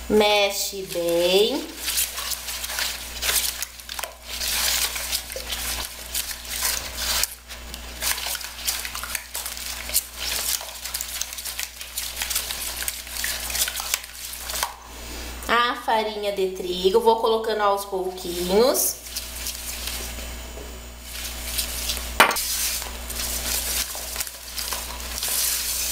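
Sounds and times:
spatula scraping a plastic bowl: 21.2s - 25.9s.

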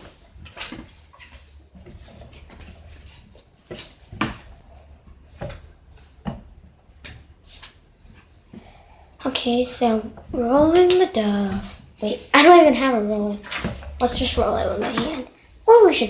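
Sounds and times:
dough thumping on wooden table: 3.7s - 7.4s.

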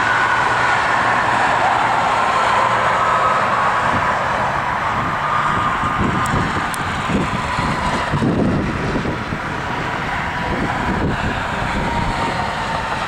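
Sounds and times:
wind buffeting microphone: 0.0s - 13.0s
mechanical drone with high whine: 4.9s - 13.0s.

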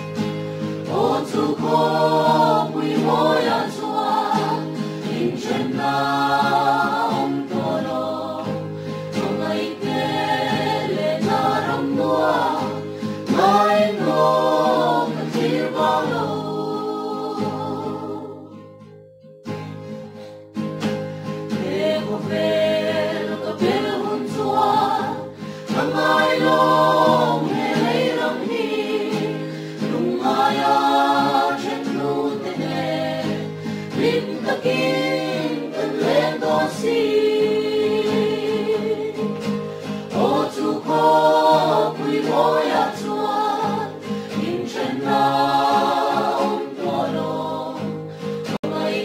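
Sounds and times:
group singing a hymn: 0.0s - 18.6s, 21.4s - 49.0s.

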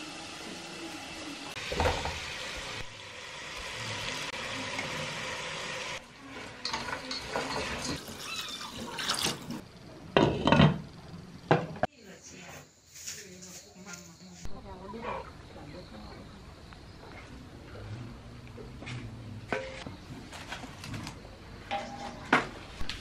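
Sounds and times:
food sizzling in a pot: 0.0s - 9.6s.

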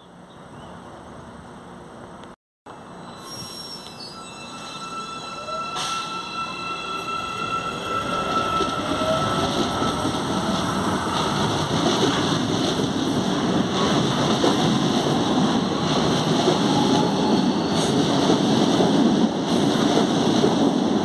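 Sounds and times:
electric train: 1.6s - 21.0s
high wheel squeal: 2.9s - 11.8s, 16.6s - 18.0s.

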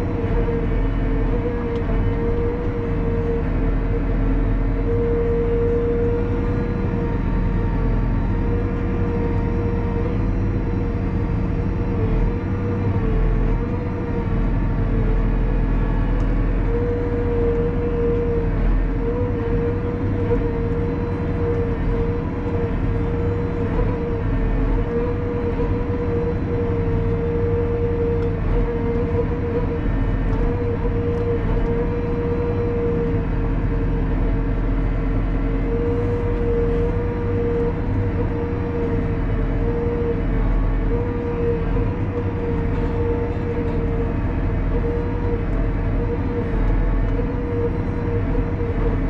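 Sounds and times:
steady whine: 0.0s - 49.0s
tractor diesel engine rumble: 0.0s - 49.0s.

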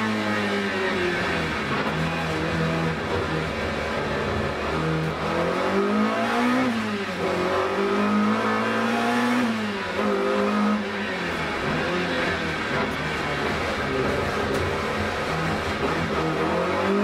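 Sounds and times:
race car engine revving: 0.0s - 17.0s.

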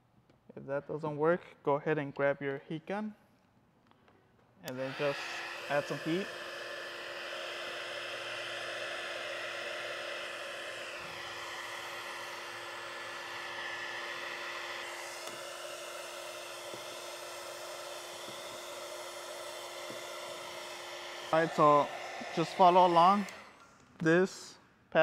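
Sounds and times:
heat gun fan humming: 4.7s - 24.0s.

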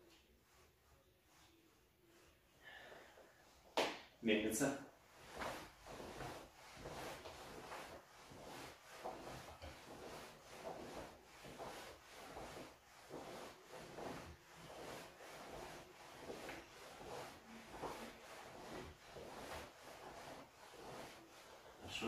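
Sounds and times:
cloth rustling with swings: 0.0s - 22.0s.

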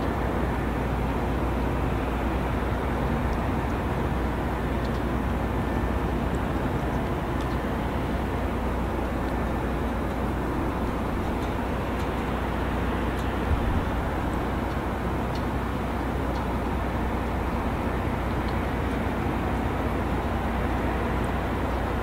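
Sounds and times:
constant low rumble: 0.0s - 22.0s
faint ticks: 4.8s - 5.1s, 7.0s - 7.7s, 10.8s - 12.4s, 13.1s - 13.9s, 14.6s - 16.6s.

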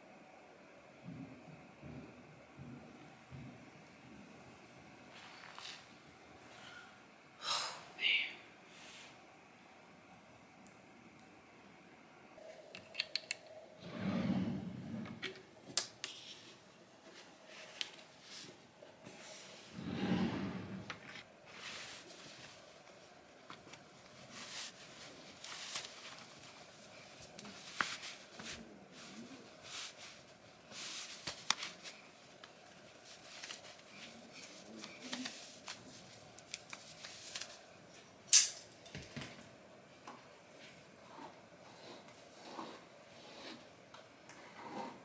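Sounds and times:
faint room hum: 0.0s - 45.0s
clothing rustling: 16.5s - 38.0s.

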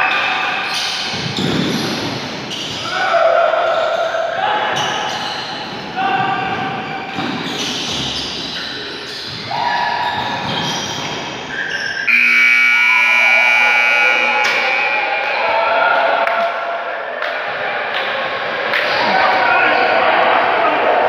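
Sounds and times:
crowd noise in a gym: 0.0s - 21.0s
loud buzzer: 12.1s - 15.2s.

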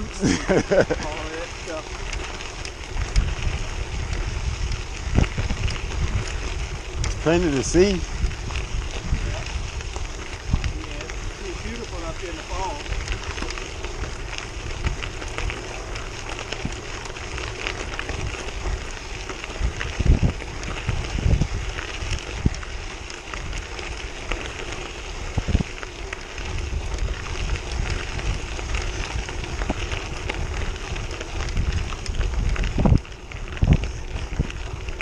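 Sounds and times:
bicycle tyres crunching on gravel: 0.0s - 35.0s.

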